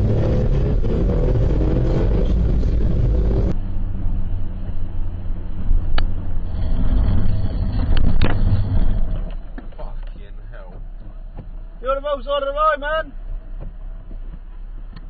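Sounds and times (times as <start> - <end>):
car engine and road rumble: 0.0 - 15.0.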